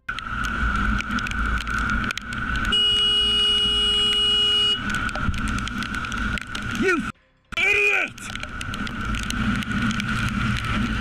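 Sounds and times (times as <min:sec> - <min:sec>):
wind and road noise: 0:00.0 - 0:11.0
vehicle horn blast: 0:02.7 - 0:04.8.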